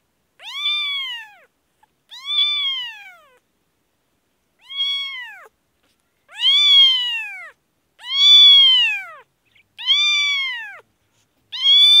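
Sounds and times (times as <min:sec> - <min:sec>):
kitten meowing: 0:00.4 - 0:01.5, 0:02.1 - 0:03.4, 0:04.6 - 0:05.5, 0:06.3 - 0:10.8, 0:11.5 - 0:12.0.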